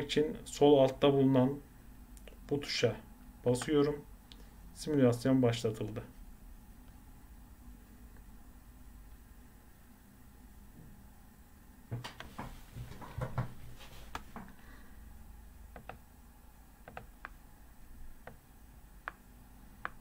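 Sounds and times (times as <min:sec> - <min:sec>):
dull knocks: 0:11.9 - 0:13.6
computer mouse clicking: 0:15.7 - 0:16.0, 0:16.8 - 0:17.4, 0:19.8 - 0:20.0.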